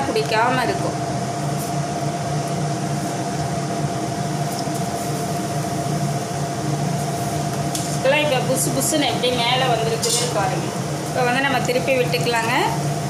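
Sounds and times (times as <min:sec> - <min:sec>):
constant tonal hum: 0:00.0 - 0:13.0
food sizzling in hot oil: 0:04.1 - 0:13.0.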